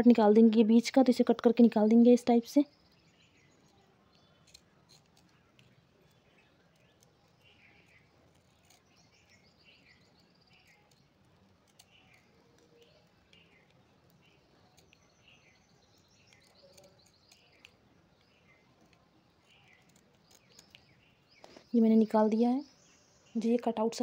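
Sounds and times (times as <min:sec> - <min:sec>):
bird chirping faintly: 0:00.0 - 0:24.0
scissors snipping: 0:04.4 - 0:21.6.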